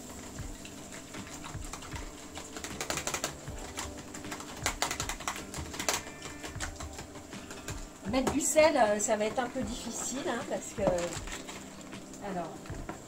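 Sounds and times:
whisk clicking against plastic: 0:01.0 - 0:07.9.

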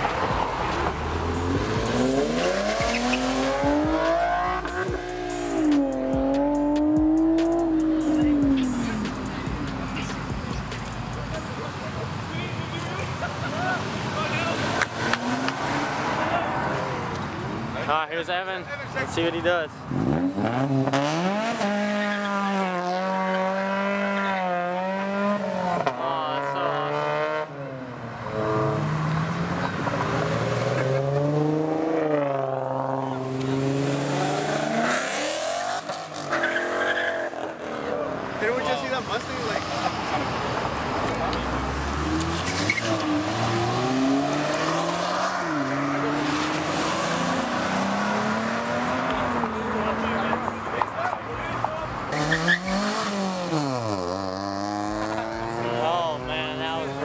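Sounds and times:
car engine revving hard: 0:00.0 - 0:09.1, 0:13.8 - 0:17.0, 0:19.9 - 0:27.7, 0:28.3 - 0:37.8, 0:41.2 - 0:50.6, 0:52.0 - 0:57.0.

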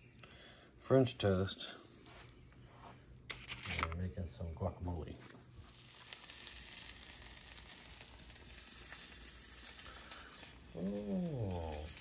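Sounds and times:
food sizzling in a pan: 0:05.6 - 0:12.0.

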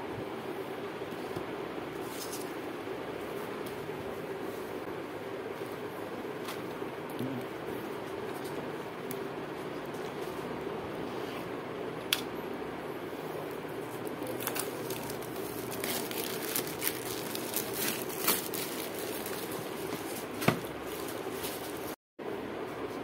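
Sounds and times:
steady low hum: 0:00.0 - 0:23.0
plastic wrap tearing and crinkling: 0:14.0 - 0:21.9.

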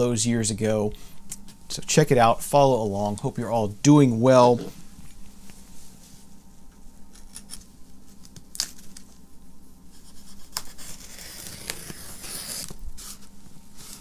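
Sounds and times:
packing tape tearing: 0:10.6 - 0:12.8.

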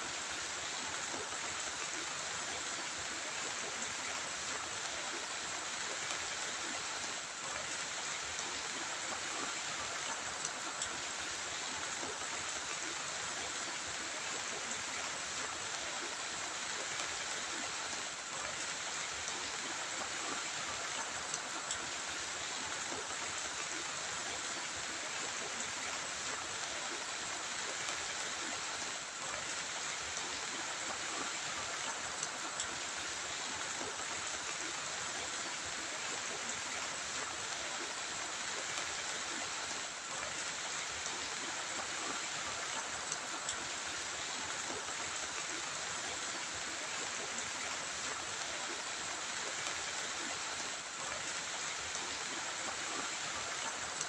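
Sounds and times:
heavy rain: 0:00.0 - 0:54.0
raindrop ticks: 0:31.8 - 0:32.8.

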